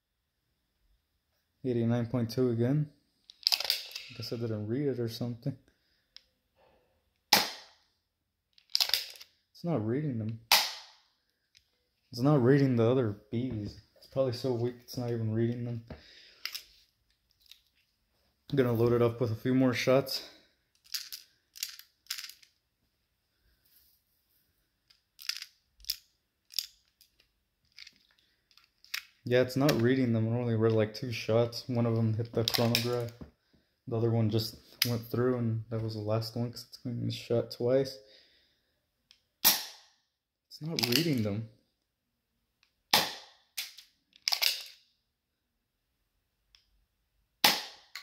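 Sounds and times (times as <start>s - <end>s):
airsoft pistol plastic clicks: 8.5s - 9.3s, 42.6s - 44.8s, 47.4s - 48.0s.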